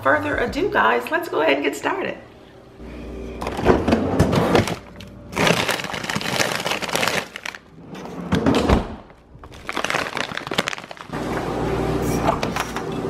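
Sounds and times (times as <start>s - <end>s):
plastic bag crinkling: 4.6s - 7.8s, 9.4s - 11.2s.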